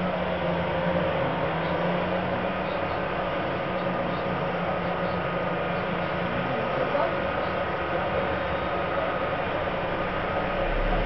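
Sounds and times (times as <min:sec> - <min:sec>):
diesel truck engines droning: 0:00.0 - 0:11.0.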